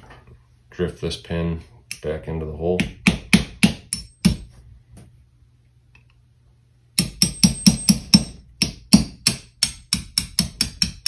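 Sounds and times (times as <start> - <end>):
small hammer tapping metal pin: 7.0 - 11.0.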